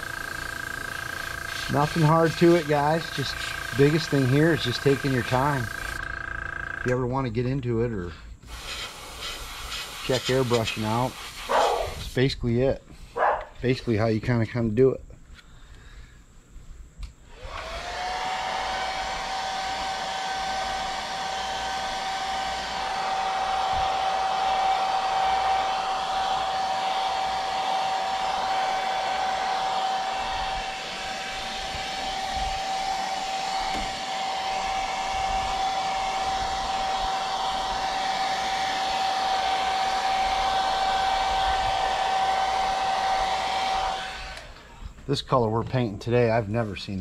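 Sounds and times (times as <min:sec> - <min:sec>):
hair dryer running: 0:00.0 - 0:06.1, 0:17.3 - 0:44.8.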